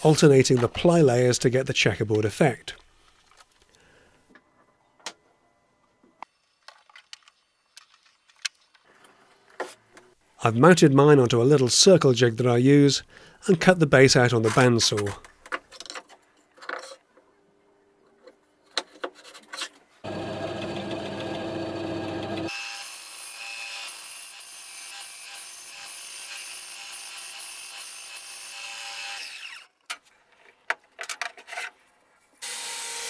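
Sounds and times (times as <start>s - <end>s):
bandsaw motor hum: 20.0s - 22.5s
bandsaw cutting wood: 20.0s - 29.7s, 32.4s - 33.0s.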